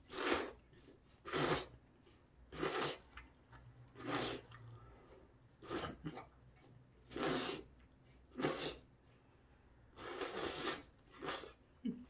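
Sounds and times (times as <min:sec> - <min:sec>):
person slurping noodles: 0:00.0 - 0:01.8, 0:02.5 - 0:03.2, 0:03.9 - 0:04.8, 0:05.6 - 0:06.3, 0:07.0 - 0:08.9, 0:09.9 - 0:11.6.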